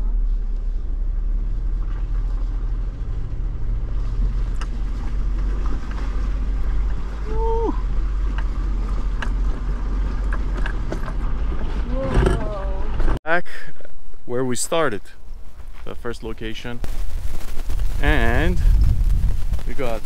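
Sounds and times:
engine and road rumble: 0:00.0 - 0:20.0.

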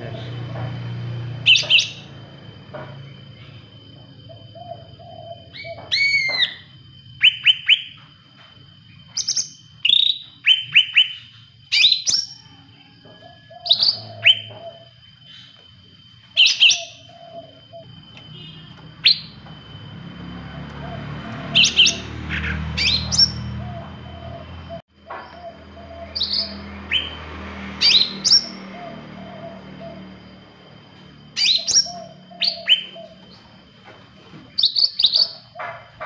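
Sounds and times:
bird whistled chirps: 0:01.4 - 0:02.1, 0:04.3 - 0:08.0, 0:09.1 - 0:12.4, 0:13.4 - 0:15.5, 0:16.4 - 0:19.4, 0:21.5 - 0:23.5, 0:25.4 - 0:27.2, 0:27.8 - 0:30.0, 0:31.4 - 0:33.4, 0:34.6 - 0:35.5.

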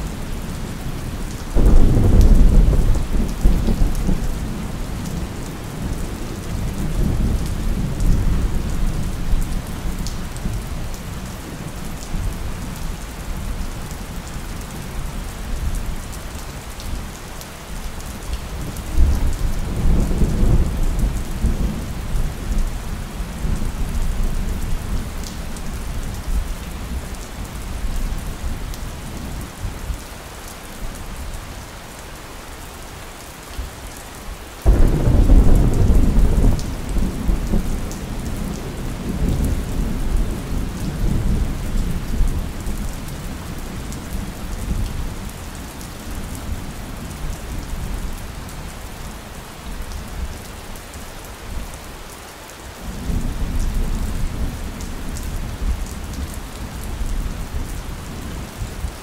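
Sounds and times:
steady rain: 0:00.0 - 0:59.0
thunder rumbling: 0:01.6 - 0:04.4, 0:34.7 - 0:42.6.

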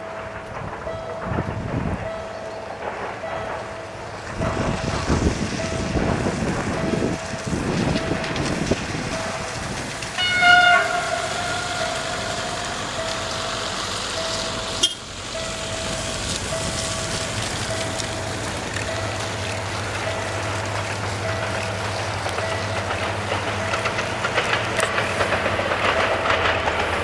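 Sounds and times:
diesel locomotive engine rumble: 0:00.0 - 0:27.0
locomotive horn blast: 0:10.2 - 0:13.4, 0:14.6 - 0:15.1.

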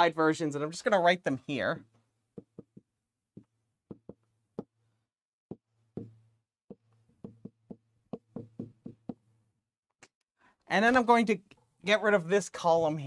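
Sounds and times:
marker tapping on whiteboard: 0:02.3 - 0:04.8, 0:05.5 - 0:09.3.

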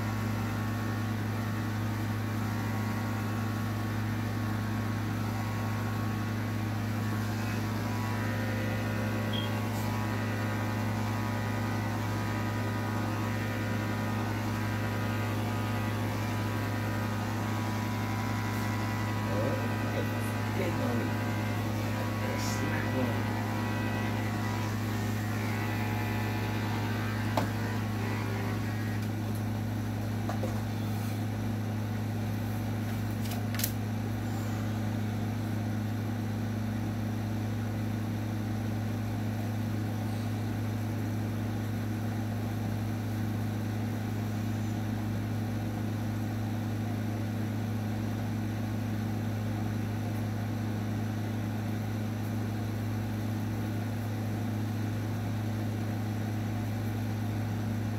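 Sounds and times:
electric clippers humming: 0:00.0 - 0:35.2.

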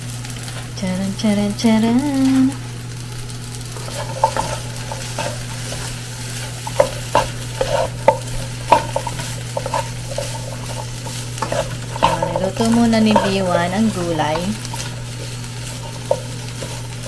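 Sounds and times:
steady low hum: 0:00.0 - 0:17.0
vegetables sizzling in a wok: 0:00.0 - 0:17.0
spatula scraping and knocking pan: 0:03.7 - 0:17.0.

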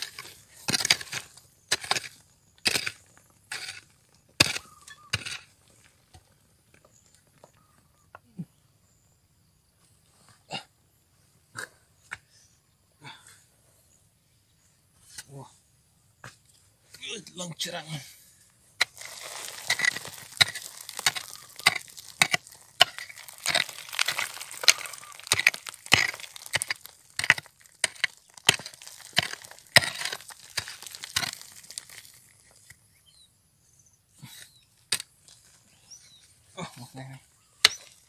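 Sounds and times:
digging tool striking shale: 0:00.0 - 0:03.8, 0:04.4 - 0:05.5, 0:18.8 - 0:32.2, 0:37.6 - 0:38.0
shale cracking and chinking: 0:18.8 - 0:32.8.

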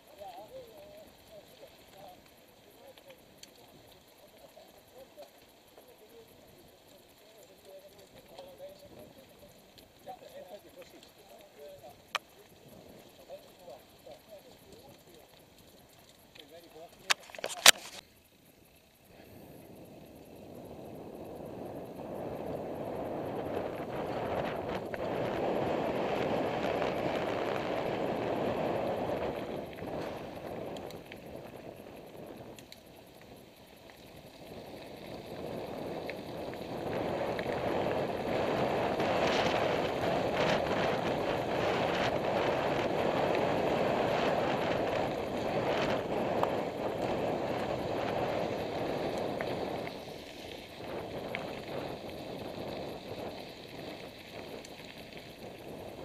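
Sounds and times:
wind rushing over microphone: 0:19.4 - 0:33.0, 0:34.3 - 0:54.6.

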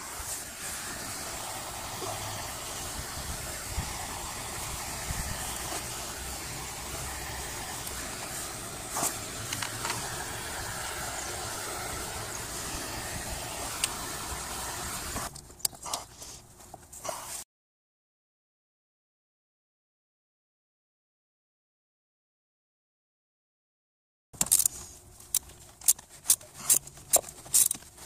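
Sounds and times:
torch burning with steady hiss: 0:00.0 - 0:15.3.

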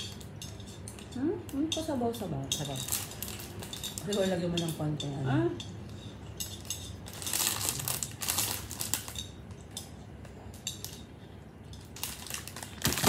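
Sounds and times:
utensils clinking against plates: 0:00.0 - 0:13.0.

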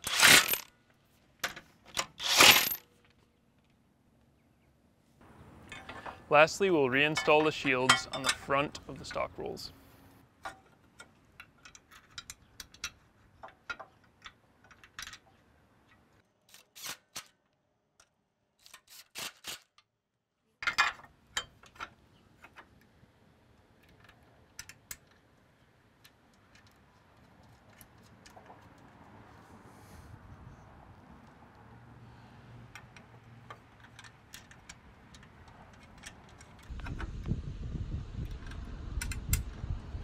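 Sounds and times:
light clicks and knocks of parts: 0:05.6 - 0:09.3, 0:10.2 - 0:16.2, 0:20.6 - 0:29.2, 0:32.6 - 0:37.0.

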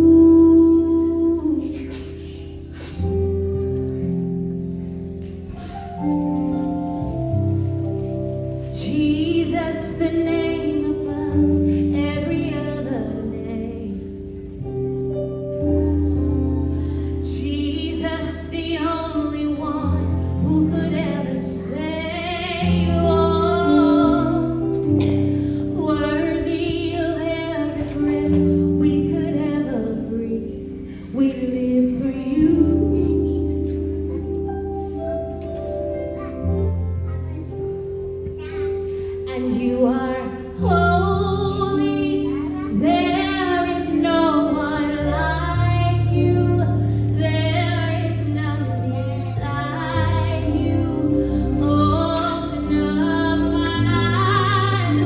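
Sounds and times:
woman singing into microphone: 0:00.0 - 0:03.2, 0:08.8 - 0:14.3, 0:17.2 - 0:33.9, 0:39.2 - 0:55.0
held accompaniment chords: 0:00.0 - 0:55.0.

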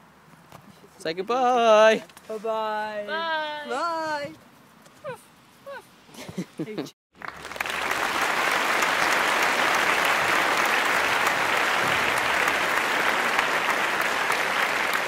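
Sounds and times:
crowd applause: 0:07.2 - 0:15.0.

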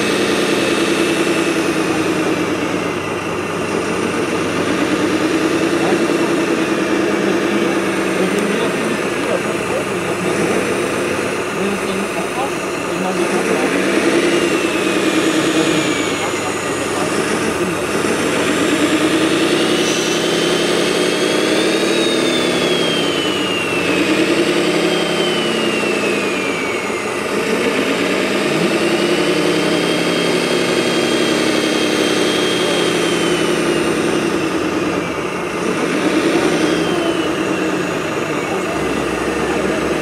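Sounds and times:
model loader engine revving: 0:00.0 - 0:40.0.

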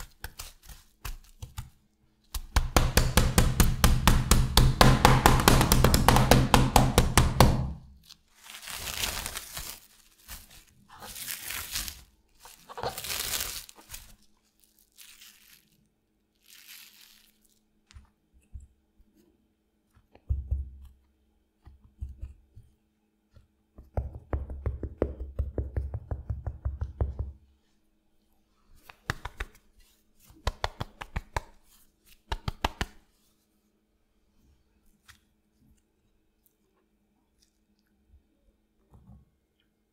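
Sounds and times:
meat mallet pounding: 0:02.4 - 0:07.8
plastic film crinkling and tearing: 0:08.0 - 0:17.6
cutlet shaken and patted: 0:28.8 - 0:33.1.

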